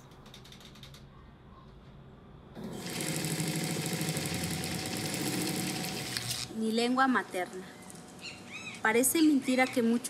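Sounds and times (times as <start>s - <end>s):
sewing machine stitching: 2.6s - 6.5s.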